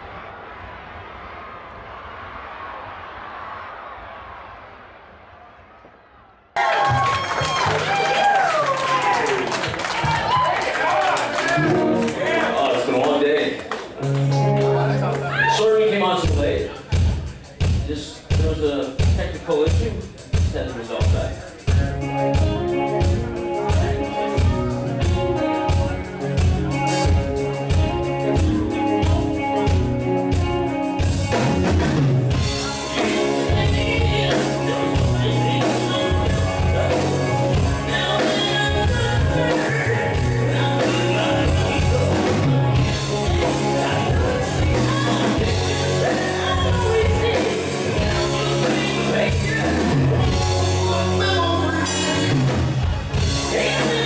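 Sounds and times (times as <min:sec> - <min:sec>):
live rock band playing: 0:11.3 - 0:54.0
man singing lead vocal: 0:32.6 - 0:52.4, 0:53.2 - 0:54.0.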